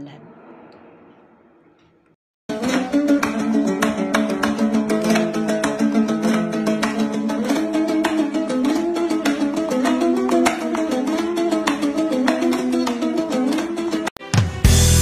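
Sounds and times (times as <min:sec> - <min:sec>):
flamenco-style plucked guitar music: 0:02.5 - 0:14.1.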